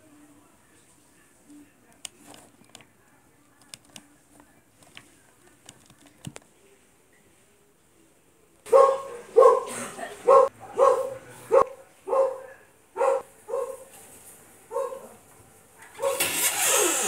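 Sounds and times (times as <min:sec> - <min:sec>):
dog barking: 0:08.7 - 0:13.9, 0:14.7 - 0:15.2, 0:15.8 - 0:16.3.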